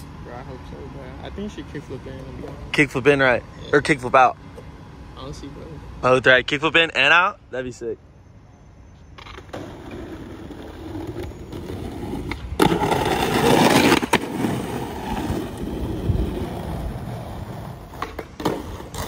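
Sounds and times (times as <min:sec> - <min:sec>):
skateboard wheels rolling on concrete: 0:08.9 - 0:19.0
skateboard trucks grinding ledge: 0:09.2 - 0:19.0
skateboard click: 0:17.8 - 0:19.0.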